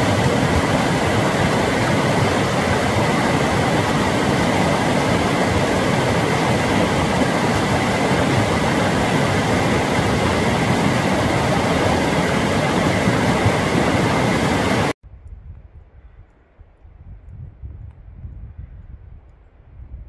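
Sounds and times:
fast-flowing water rushing: 0:00.0 - 0:15.0.

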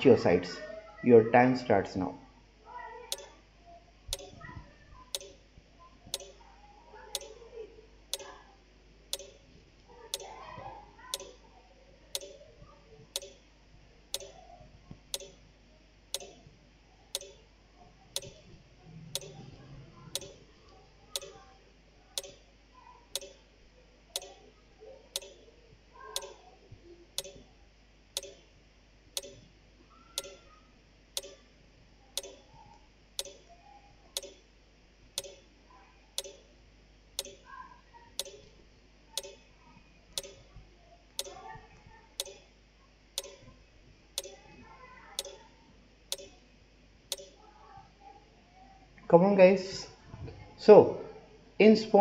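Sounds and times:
clock ticking: 0:03.1 - 0:03.3, 0:04.1 - 0:04.4, 0:05.1 - 0:05.4, 0:06.1 - 0:06.4, 0:07.1 - 0:07.4, 0:08.1 - 0:08.3, 0:09.1 - 0:09.4, 0:10.1 - 0:10.4, 0:11.1 - 0:11.4, 0:12.1 - 0:12.4, 0:13.1 - 0:13.4, 0:14.1 - 0:14.4, 0:15.1 - 0:15.4, 0:16.1 - 0:16.4, 0:17.2 - 0:17.4, 0:18.2 - 0:18.4, 0:19.1 - 0:19.5, 0:20.1 - 0:20.4, 0:21.2 - 0:21.4, 0:22.2 - 0:22.4, 0:23.2 - 0:23.4, 0:24.2 - 0:24.4, 0:25.2 - 0:25.4, 0:26.2 - 0:26.4, 0:27.2 - 0:27.4, 0:28.2 - 0:28.4, 0:29.2 - 0:29.5, 0:30.2 - 0:30.4, 0:31.2 - 0:31.4, 0:32.2 - 0:32.4, 0:33.2 - 0:33.4, 0:34.2 - 0:34.4, 0:35.2 - 0:35.4, 0:36.2 - 0:36.4, 0:37.2 - 0:37.4, 0:38.2 - 0:38.5, 0:39.2 - 0:39.4, 0:40.2 - 0:40.4, 0:41.2 - 0:41.4, 0:42.2 - 0:42.5, 0:43.2 - 0:43.4, 0:44.2 - 0:44.4, 0:45.2 - 0:45.4, 0:46.1 - 0:46.4, 0:47.1 - 0:47.4.

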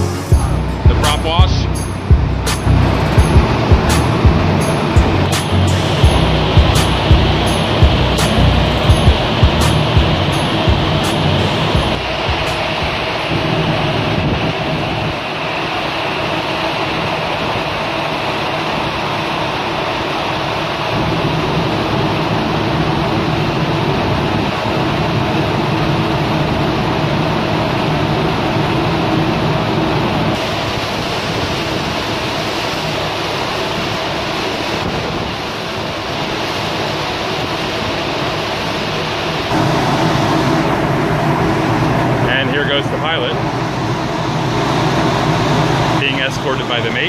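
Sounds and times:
low hum: 0:00.0 - 0:36.2, 0:38.1 - 0:47.0
rushing sea: 0:00.0 - 0:47.0
wind buffeting microphone: 0:02.0 - 0:15.6.

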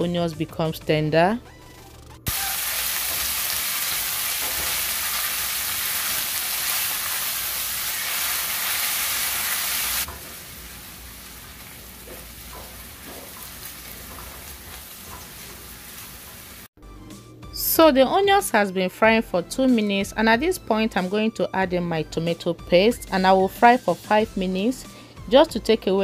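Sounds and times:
onions sizzling in oil: 0:02.3 - 0:16.7.

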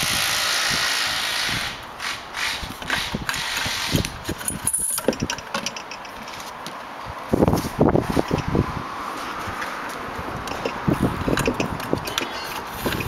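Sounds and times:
metal bar knocks and scrapes: 0:02.8 - 0:06.6.

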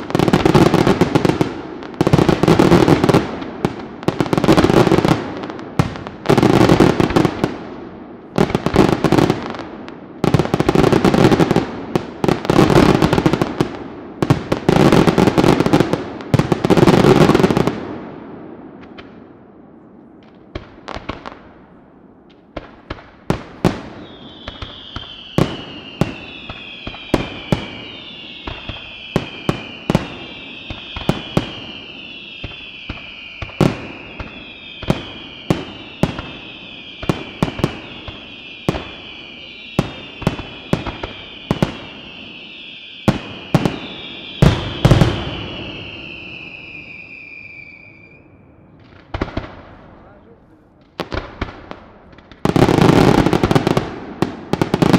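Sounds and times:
firework bangs: 0:00.0 - 0:54.9
firework falling whistles: 0:23.8 - 0:49.5.

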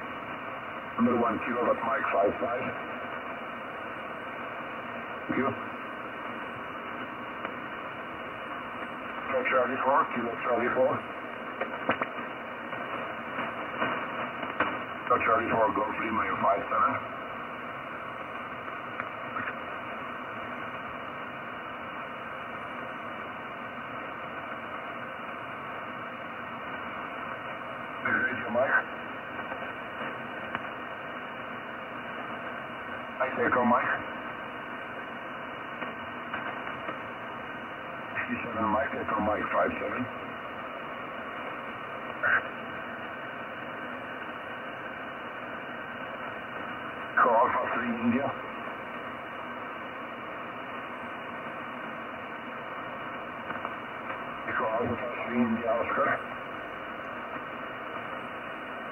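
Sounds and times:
radio band noise hiss: 0:00.0 - 0:58.9
brief radio signal: 0:41.8 - 0:46.1.

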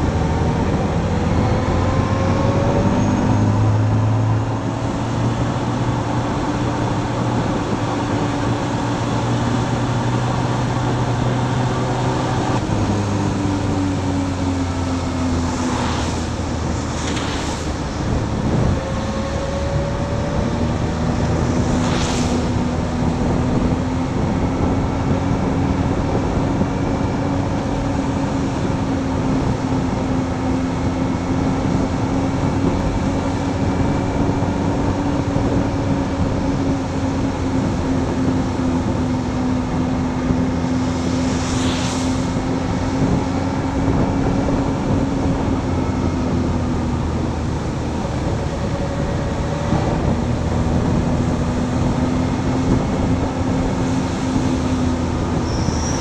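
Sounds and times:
motorcycle engine cruising: 0:00.0 - 0:56.0
wind noise: 0:00.0 - 0:56.0
tyre noise on wet road: 0:01.7 - 0:56.0.

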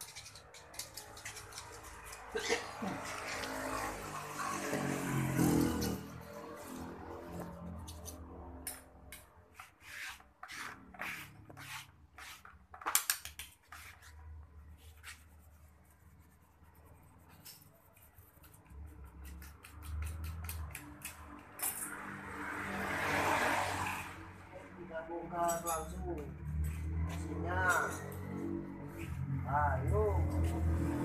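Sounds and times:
metal tool scraping engine: 0:00.0 - 0:06.9.

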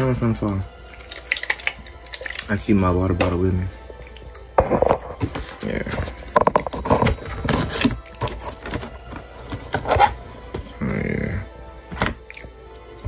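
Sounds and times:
plastic bottle crinkling: 0:04.2 - 0:10.6.

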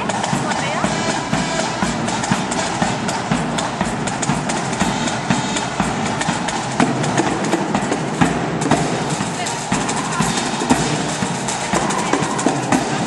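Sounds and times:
bass drum beats: 0:00.0 - 0:13.0
snare drums rapid strokes: 0:00.0 - 0:13.0.

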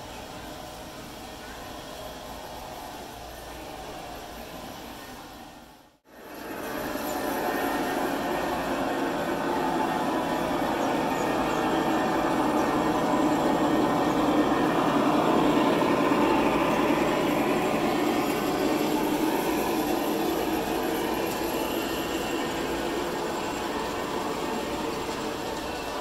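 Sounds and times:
model train wheels rumbling: 0:00.0 - 0:26.0.

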